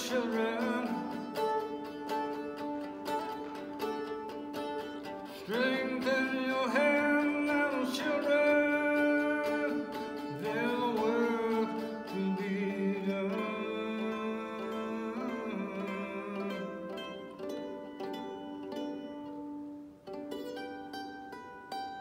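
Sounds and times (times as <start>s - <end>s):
man singing long held notes: 0.0s - 2.2s, 5.2s - 18.2s
mandolin strumming: 0.0s - 22.0s.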